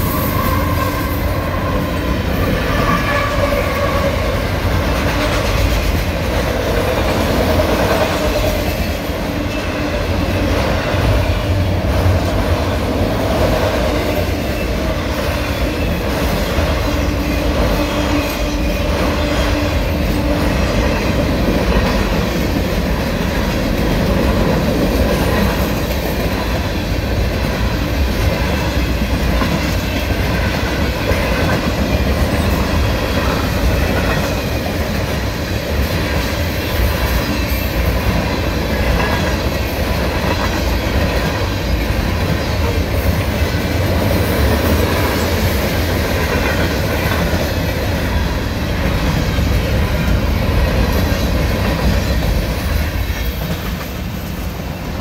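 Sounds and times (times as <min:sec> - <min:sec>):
train wheels rumbling on rail: 0:00.0 - 0:55.0
wheels clickety-clack on rail joints: 0:00.0 - 0:55.0.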